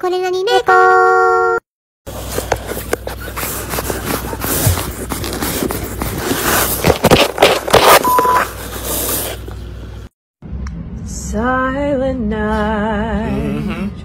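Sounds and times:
fabric rustling and scraping: 0:02.1 - 0:09.6
brief steady tone: 0:08.0 - 0:08.5.

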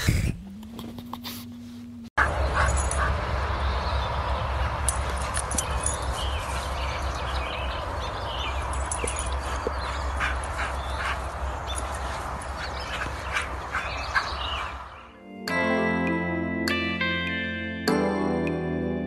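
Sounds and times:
wind rumble on microphone: 0:00.0 - 0:00.6.

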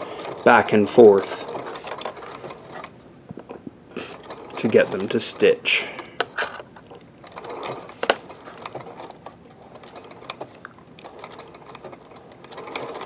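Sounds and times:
sewing machine clicks: 0:00.0 - 0:03.0, 0:04.0 - 0:13.0
sewing machine stitching: 0:00.0 - 0:03.0, 0:03.9 - 0:13.0.

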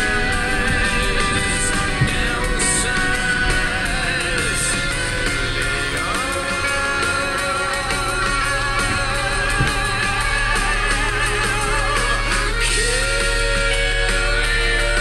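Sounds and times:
guitar music: 0:00.0 - 0:15.0.

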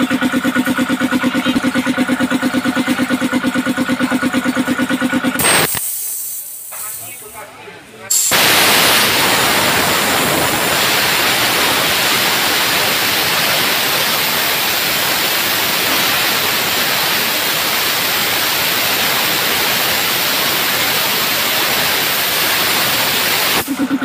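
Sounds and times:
compressed air hissing: 0:05.4 - 0:07.3, 0:08.1 - 0:23.9.

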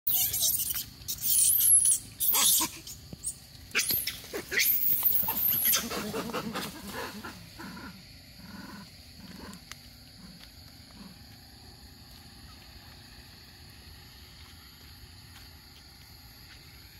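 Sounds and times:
monkey screaming shrill cries: 0:00.1 - 0:06.6
soft low monkey calls: 0:00.1 - 0:09.6.

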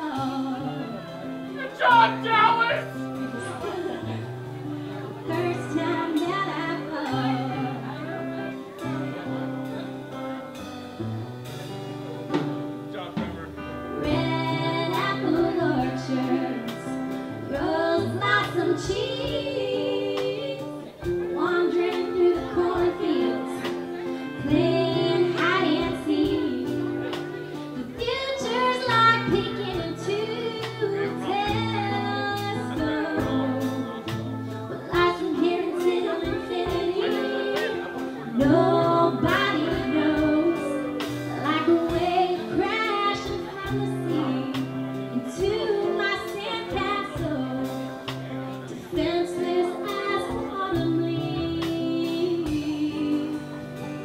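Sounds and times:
bass notes: 0:00.0 - 0:54.0
live band music: 0:00.0 - 0:54.0
pitch-bending lead melody: 0:01.4 - 0:06.0.

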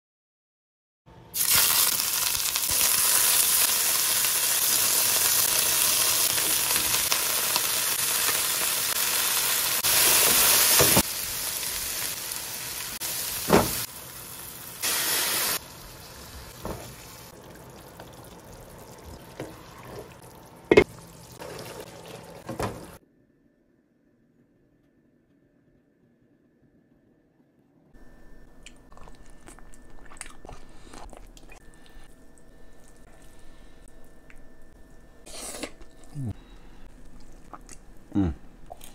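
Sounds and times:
food frying in oil: 0:01.4 - 0:23.0.

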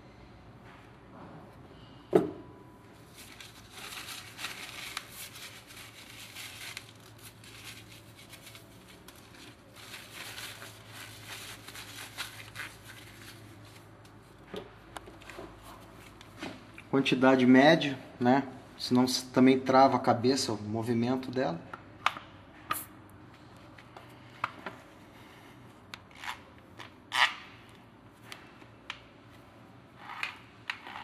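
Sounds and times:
rustling crackling handling sounds: 0:03.0 - 0:14.4.

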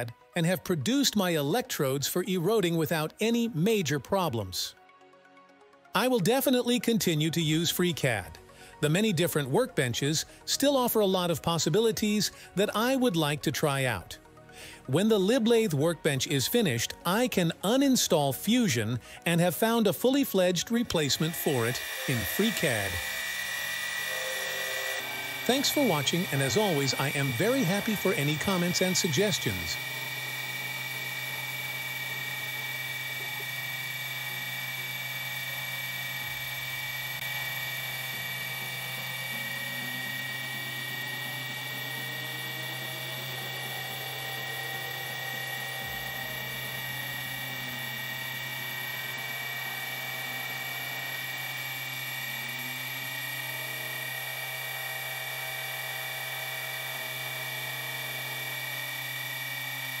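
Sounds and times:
milling machine spindle whine: 0:06.0 - 1:00.0
axis motors gliding in pitch: 0:12.6 - 1:00.0.

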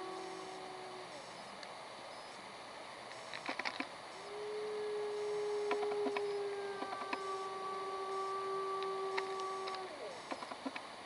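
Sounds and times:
wolf howling: 0:00.0 - 0:01.3, 0:04.2 - 0:10.3.

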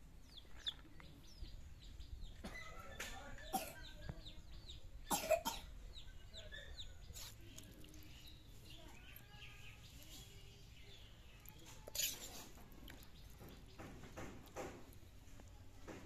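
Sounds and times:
birds chirping: 0:00.0 - 0:16.0.

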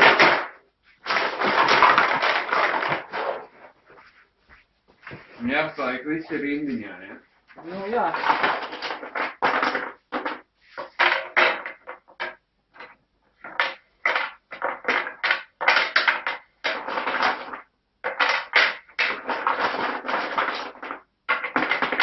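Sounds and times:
wooden pieces knocking and clacking: 0:00.0 - 0:03.8, 0:07.5 - 0:22.0.

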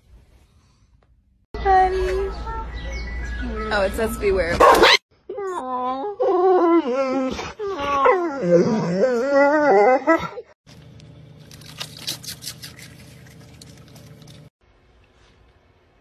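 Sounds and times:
dog howling whines: 0:05.3 - 0:10.4.

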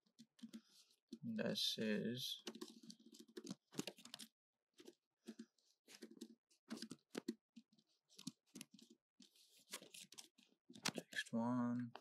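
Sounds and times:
computer keyboard typing: 0:02.5 - 0:04.2.

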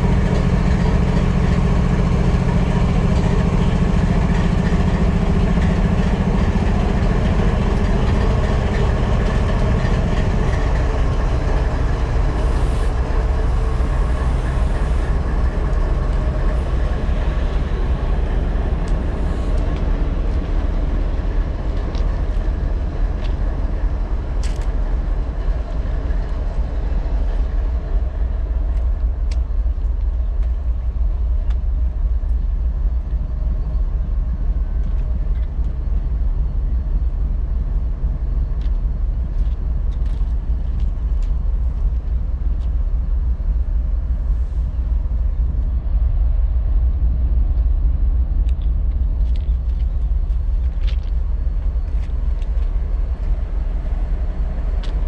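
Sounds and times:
locomotive diesel engine idling: 0:00.0 - 0:30.4.

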